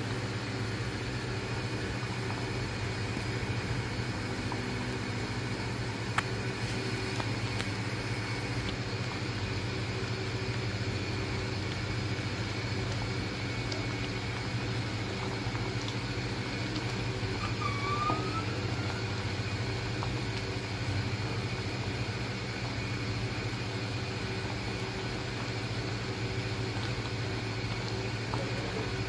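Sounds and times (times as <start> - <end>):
low machine hum: 0.0 - 29.0
short rising squeak: 17.4 - 19.0.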